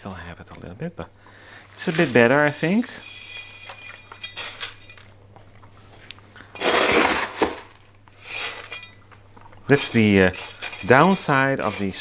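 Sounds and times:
grit clinking and rattling: 1.4 - 5.2, 6.5 - 12.0.

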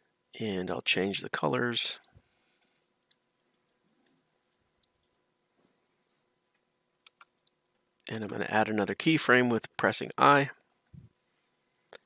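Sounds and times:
computer mouse clicks: 3.0 - 3.8, 7.0 - 8.1.

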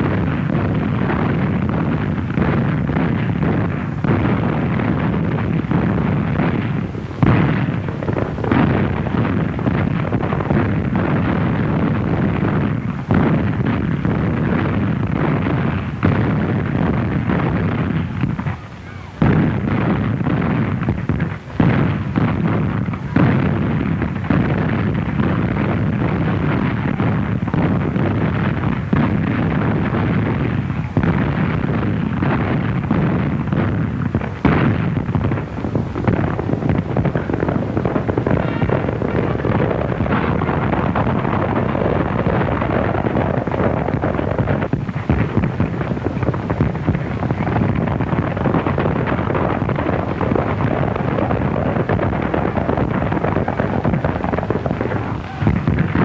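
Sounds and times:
cannon blasts: 0.0 - 56.0
gunfire din: 0.0 - 56.0.

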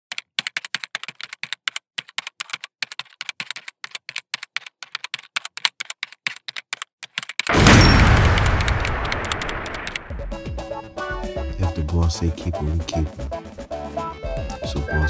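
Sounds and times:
keyboard typing clicks: 0.1 - 10.1.

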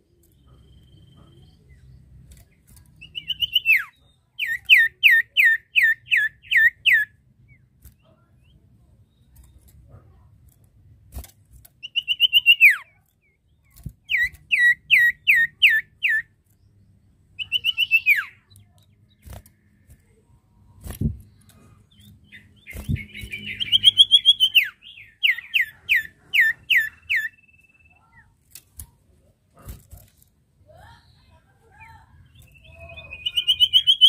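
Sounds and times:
bird trilling and whistling: 3.0 - 7.1, 11.8 - 12.9, 14.0 - 16.3, 17.4 - 18.4, 21.9 - 28.0, 32.3 - 34.0.

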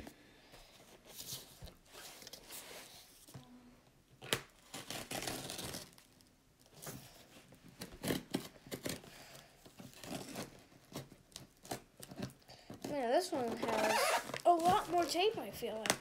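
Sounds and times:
packing tape ripping: 4.2 - 6.9, 7.8 - 15.0
cardboard rustling: 6.7 - 16.0.

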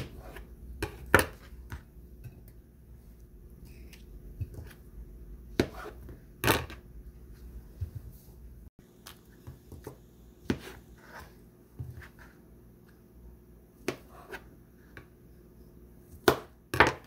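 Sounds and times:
knife on plastic cutting board: 5.6 - 6.8.

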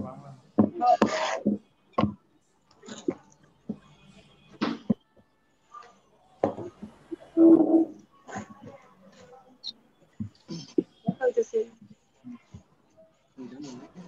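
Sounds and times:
faint voice-like sound: 5.4 - 14.0.

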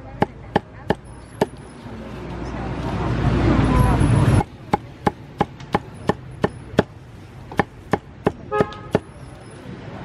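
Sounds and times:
cleaver chopping on block: 4.7 - 6.9, 7.5 - 9.2.

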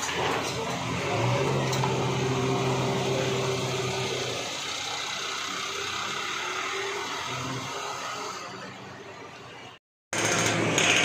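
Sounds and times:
diesel engine running: 0.1 - 9.2.

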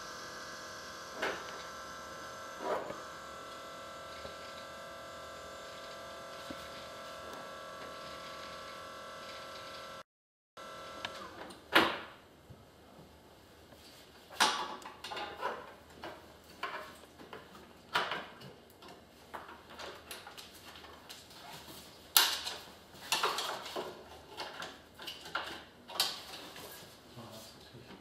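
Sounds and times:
wheelchair parts clacking and knocking: 14.3 - 21.2, 22.2 - 26.6.

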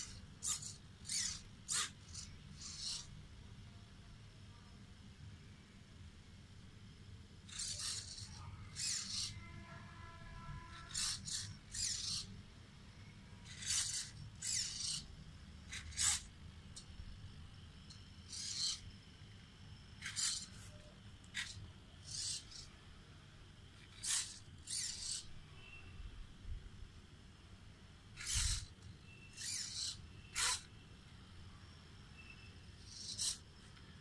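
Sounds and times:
servo gears whirring: 0.0 - 3.1, 7.5 - 9.4, 10.7 - 12.3, 13.4 - 16.9, 17.8 - 18.9, 20.0 - 22.7, 23.7 - 25.3, 28.2 - 30.7, 32.8 - 33.5.

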